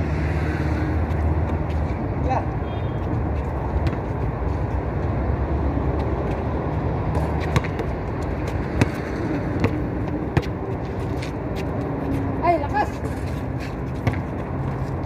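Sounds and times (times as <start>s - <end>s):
basketball bouncing: 3.8s - 4.2s, 7.1s - 10.8s, 13.9s - 14.9s.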